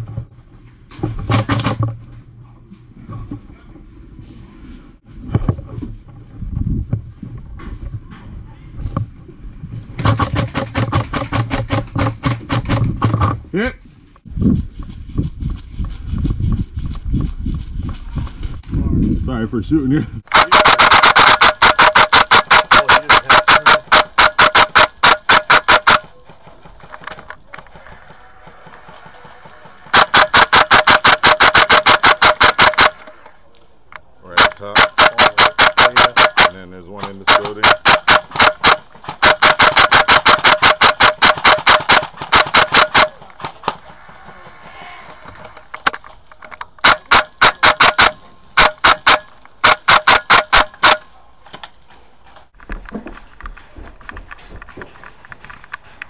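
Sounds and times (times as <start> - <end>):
airsoft rifle rapid fire: 10.0 - 13.0, 20.3 - 33.3, 34.3 - 44.6, 46.8 - 51.1.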